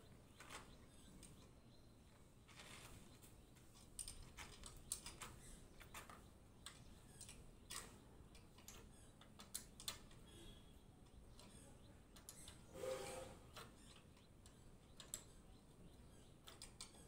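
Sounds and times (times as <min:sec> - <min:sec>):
faint metallic clicks and taps: 0:13.6 - 0:17.0.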